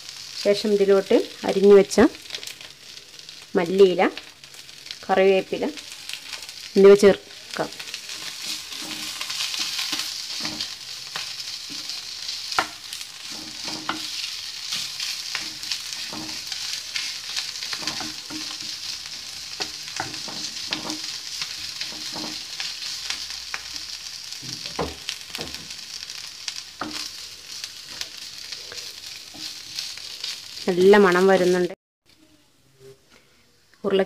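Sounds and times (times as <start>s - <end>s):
filling sizzling in a frying pan: 0.0s - 32.3s
wooden spatula scraping a pan: 8.1s - 23.0s.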